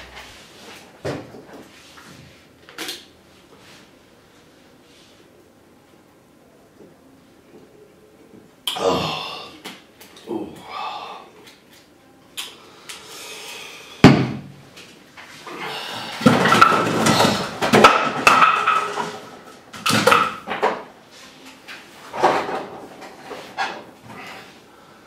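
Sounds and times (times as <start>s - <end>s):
objects clattering on desk: 16.2s - 20.9s.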